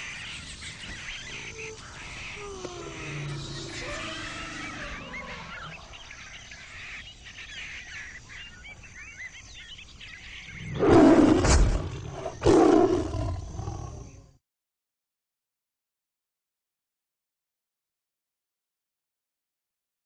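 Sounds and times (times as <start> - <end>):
faint bird chirps: 0.0 - 14.4
big cat roaring: 1.3 - 5.9, 10.6 - 14.4.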